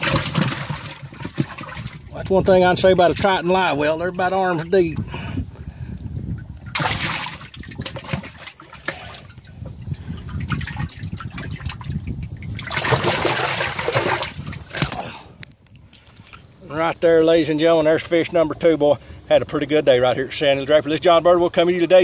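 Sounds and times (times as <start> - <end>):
water sloshing and splashing: 0.0 - 16.6.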